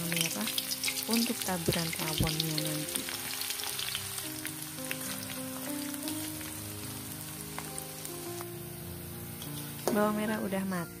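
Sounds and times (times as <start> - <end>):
oil crackles: 0.0 - 8.6
background music with held notes: 0.0 - 11.0
shallots sizzling in hot oil: 0.0 - 11.0.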